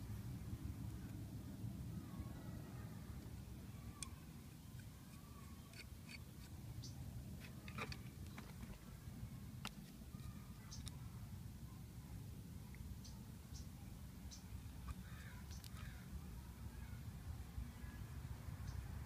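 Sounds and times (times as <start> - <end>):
screwdriver metal clicks and scrapes: 5.1 - 6.5.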